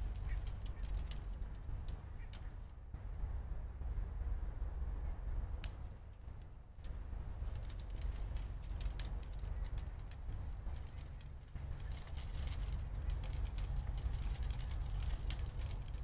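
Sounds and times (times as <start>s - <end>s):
light ticks and clicks: 0.0s - 2.8s, 5.6s - 16.0s
wind rumbling on microphone: 0.0s - 16.0s.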